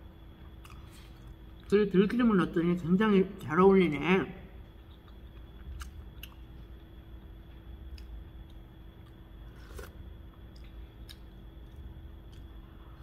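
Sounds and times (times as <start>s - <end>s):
low room hum: 0.0s - 13.0s
person chewing food: 0.4s - 1.7s, 4.7s - 13.0s.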